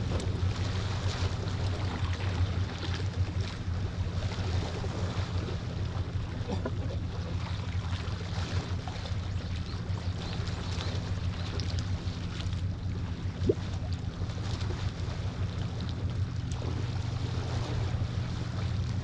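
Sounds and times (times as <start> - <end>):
low rumble: 0.0 - 19.0.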